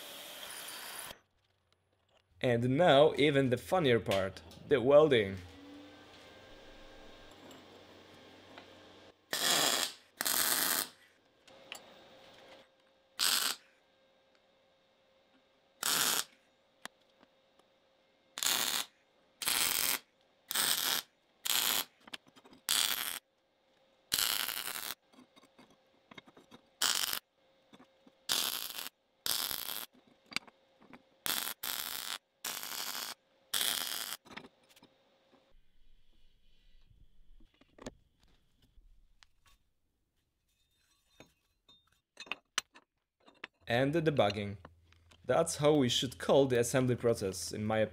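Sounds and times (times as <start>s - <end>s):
welding arc crackling: 9.3s - 11.0s, 13.2s - 13.6s, 15.8s - 16.3s, 18.4s - 22.0s, 22.7s - 23.2s, 24.1s - 25.0s, 26.8s - 27.2s, 28.3s - 29.9s, 31.3s - 34.2s.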